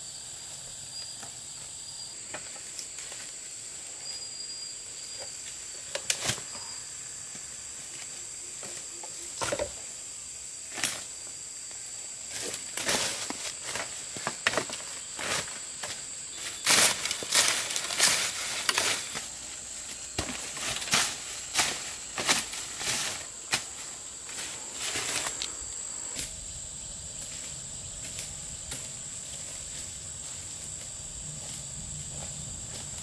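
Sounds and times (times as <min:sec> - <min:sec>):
high-pitched insect drone: 0:00.0 - 0:33.0
digging stick knocking in leaves: 0:16.6 - 0:25.6.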